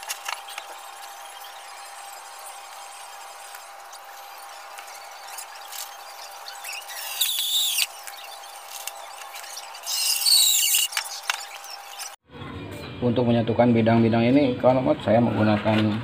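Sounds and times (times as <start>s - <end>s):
cordless drill squealing: 0.0s - 12.2s.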